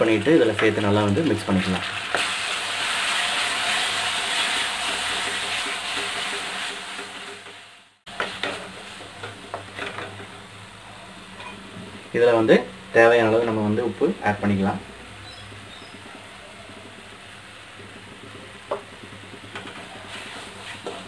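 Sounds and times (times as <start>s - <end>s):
paste sizzling in hot oil: 0.0s - 21.0s
spatula knocking pan: 15.4s - 21.0s.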